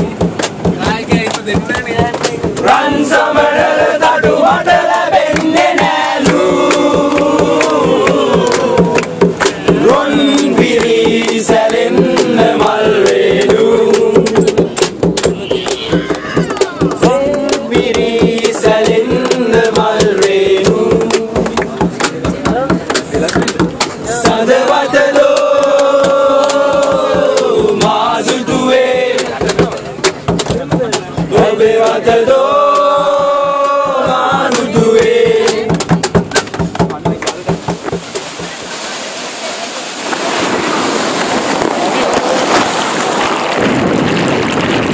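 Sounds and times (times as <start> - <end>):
fast percussive beat: 0.0 - 38.6
voices singing together: 0.8 - 14.8, 15.4 - 22.0, 23.8 - 29.7, 31.1 - 36.2.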